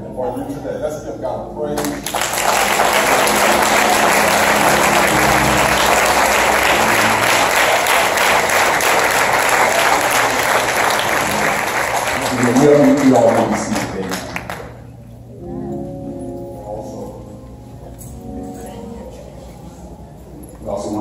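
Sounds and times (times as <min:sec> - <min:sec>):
congregation applauding: 0:01.8 - 0:15.0.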